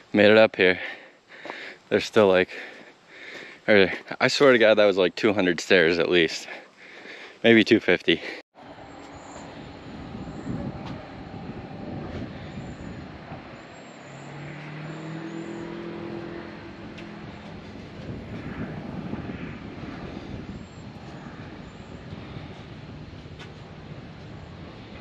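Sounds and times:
distant engine hum: 8.6s - 25.0s
wind buffeting microphone: 8.8s - 25.0s.

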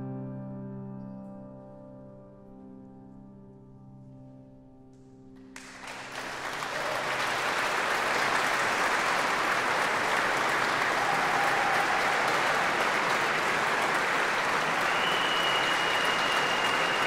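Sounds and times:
audience applause: 5.6s - 17.0s.

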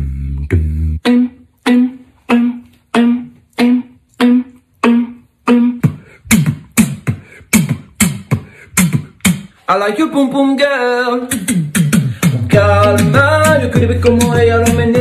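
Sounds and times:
beatboxed deep beat: 0.0s - 10.5s, 11.1s - 15.0s
beatboxed plucked-string melody: 0.0s - 15.0s.

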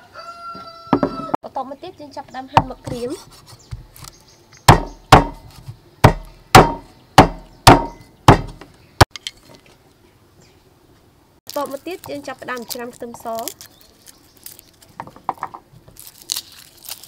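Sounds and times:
cleaver chopping on wooden block: 4.6s - 8.6s.

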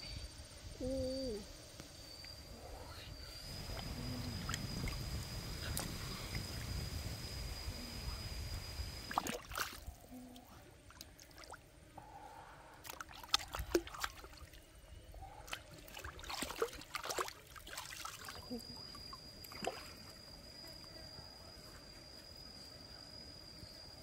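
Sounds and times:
water splashing and sloshing: 9.1s - 11.6s, 12.8s - 14.6s, 15.4s - 18.5s, 19.4s - 20.0s.

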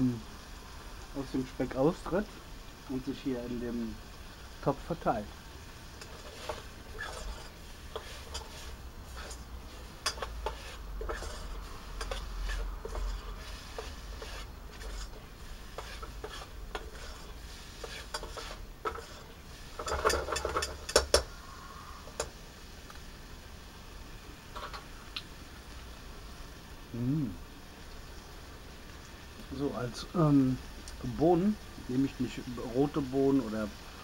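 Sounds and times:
bacon frying in a pot: 0.0s - 34.0s
spork scraping and clicking on pot: 6.0s - 8.6s, 9.2s - 9.4s, 10.0s - 15.2s, 15.8s - 21.3s.

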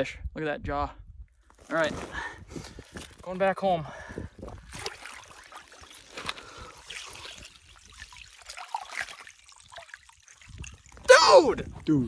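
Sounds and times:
water trickling and sloshing: 3.9s - 12.0s
small splashes: 4.5s - 11.8s.

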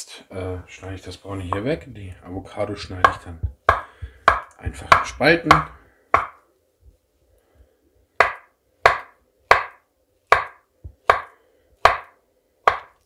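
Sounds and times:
knife knocking on wooden board: 3.0s - 6.4s.

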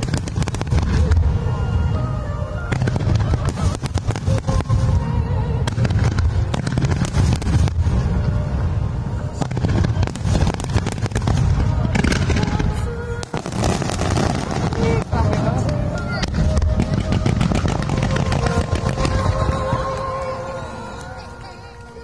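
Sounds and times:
crackling firework stars: 0.0s - 22.0s
firework shells booming: 9.4s - 20.3s.

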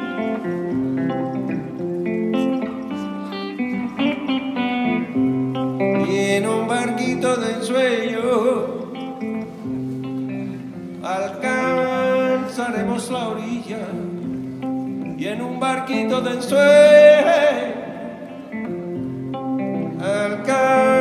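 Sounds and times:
acoustic guitar picking and strumming: 0.0s - 21.0s
person singing wordless held notes: 11.0s - 14.3s.

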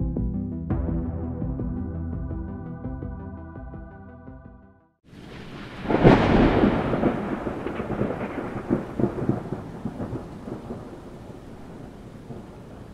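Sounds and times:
thunder crack and rumble: 5.2s - 12.9s.

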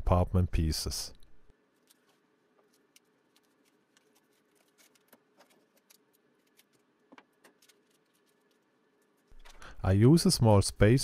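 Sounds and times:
small parts clicking and tapping: 1.8s - 9.7s.

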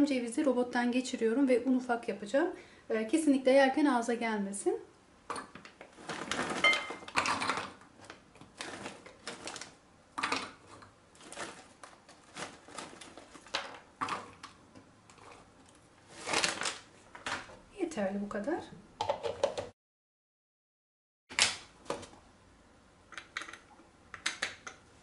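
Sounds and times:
plastic bag rustling: 5.8s - 9.8s, 10.6s - 14.6s, 15.2s - 17.6s.

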